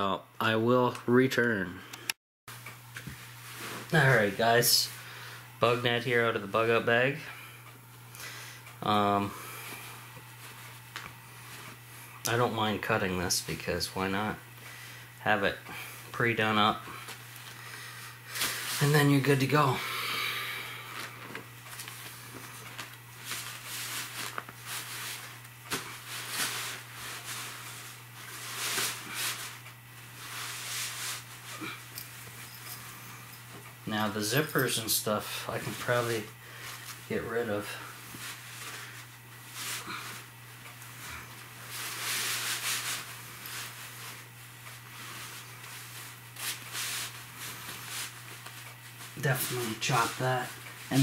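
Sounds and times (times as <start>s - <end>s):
steady low hum: 0.0s - 51.0s
rustling fabric netting: 20.7s - 33.6s, 35.5s - 51.0s.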